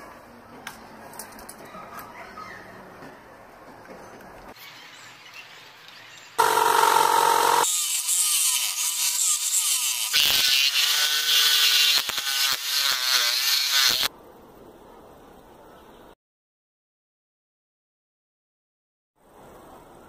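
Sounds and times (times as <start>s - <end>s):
jigsaw cutting plywood: 6.4s - 9.4s.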